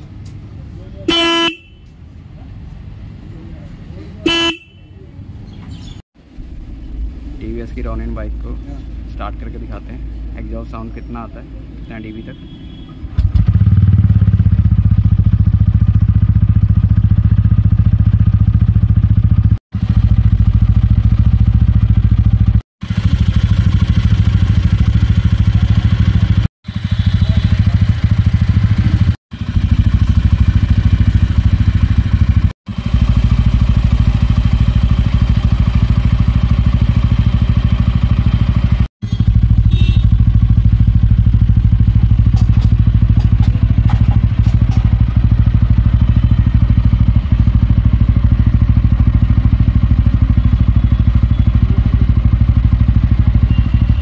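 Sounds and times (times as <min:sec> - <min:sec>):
motorcycle engine idling: 0:04.3 - 0:05.0, 0:12.6 - 0:54.0
motorcycle engine starting: 0:13.1 - 0:54.0.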